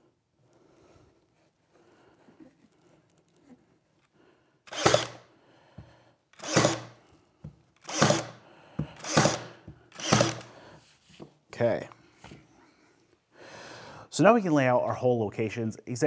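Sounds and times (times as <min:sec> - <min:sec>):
pin nailer firing: 0:04.7 - 0:05.2, 0:06.4 - 0:07.0, 0:07.8 - 0:08.4, 0:09.0 - 0:10.6.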